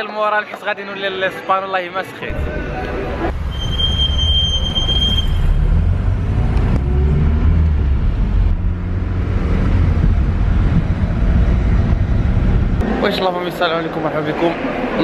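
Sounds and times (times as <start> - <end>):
car engine and road rumble: 2.4 - 12.8.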